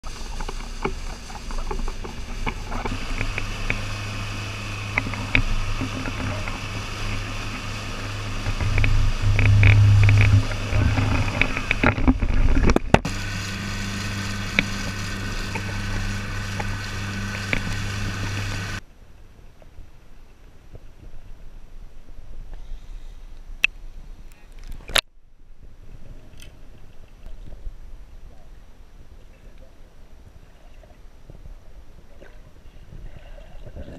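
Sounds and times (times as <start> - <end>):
motorboat engine humming: 0.0 - 18.8
water splashing in boat wake: 0.0 - 18.8.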